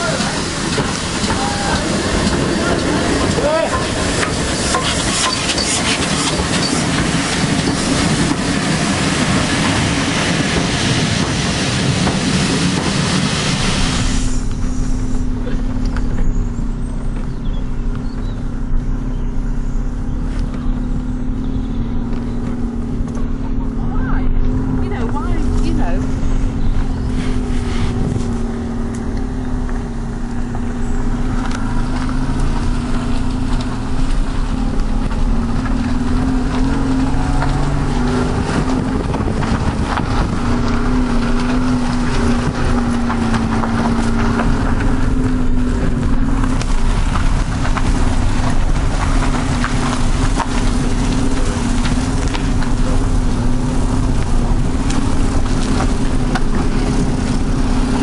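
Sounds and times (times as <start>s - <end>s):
vehicle running rumble: 0.0s - 58.0s
low wavering hum: 12.3s - 58.0s.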